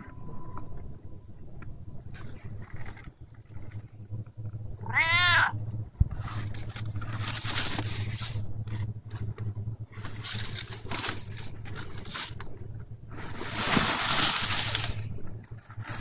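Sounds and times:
cat meowing: 0:04.8 - 0:05.6
rustling packing paper: 0:06.2 - 0:09.3, 0:09.9 - 0:16.0.

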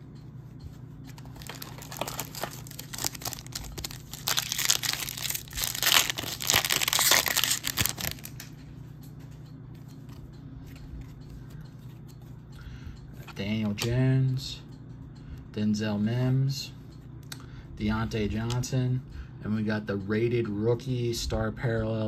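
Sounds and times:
faint handling of cards: 0:00.7 - 0:12.5
foil wrapper tearing and crinkling: 0:01.3 - 0:08.4.

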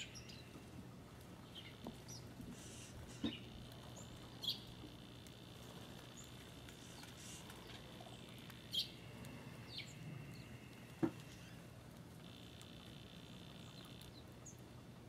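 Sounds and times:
faint steady hum: 0:00.0 - 0:15.0
songbird chip calls: 0:01.4 - 0:04.8, 0:06.0 - 0:11.5.

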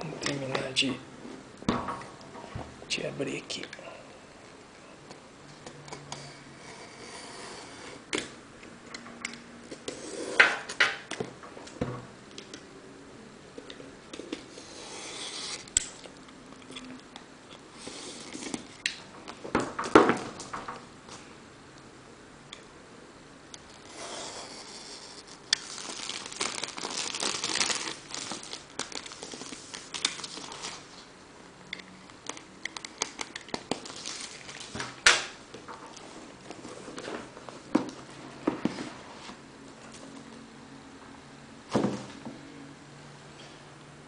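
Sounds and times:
plastic wrap crinkling and tearing: 0:25.2 - 0:31.0, 0:32.2 - 0:35.0.

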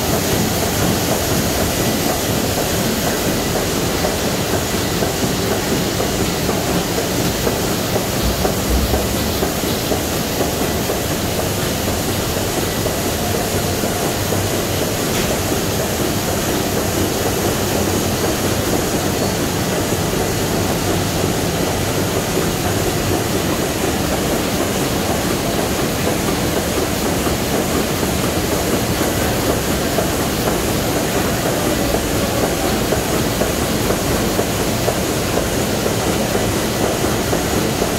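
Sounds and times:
printing press running: 0:00.0 - 0:37.9.

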